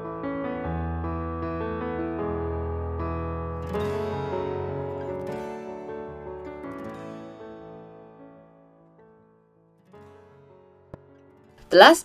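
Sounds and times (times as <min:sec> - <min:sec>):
instrumental background music: 0:00.0 - 0:08.4.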